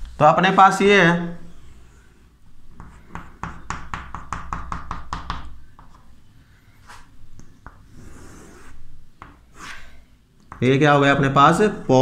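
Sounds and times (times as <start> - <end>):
chalk tapping on a chalkboard: 2.7 - 6.0, 6.9 - 9.8, 10.4 - 10.7.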